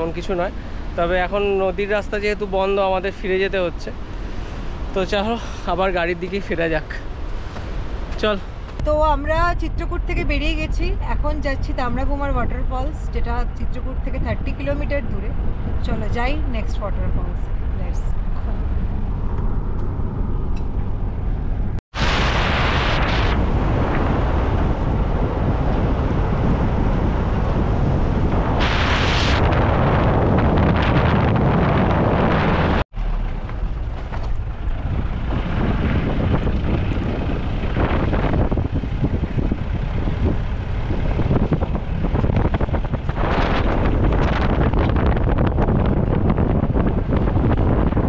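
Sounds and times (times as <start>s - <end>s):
car road and engine noise: 0.0s - 48.0s
wind rushing over microphone: 0.0s - 48.0s.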